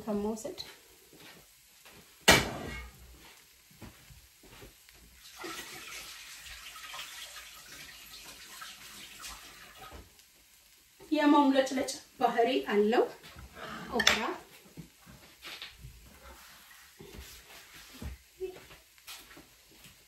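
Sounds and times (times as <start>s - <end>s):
water running from kitchen tap: 5.1s - 11.9s.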